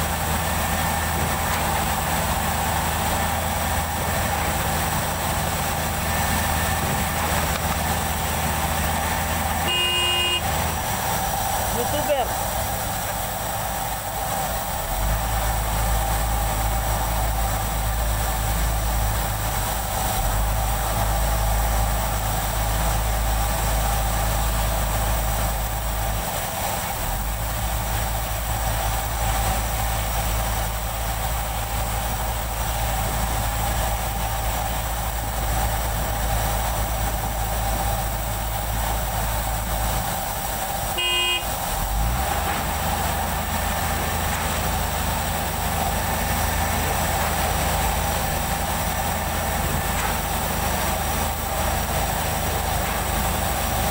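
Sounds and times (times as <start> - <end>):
diesel engine running: 0.0 - 53.9
short beep: 9.7 - 10.5, 41.0 - 41.5.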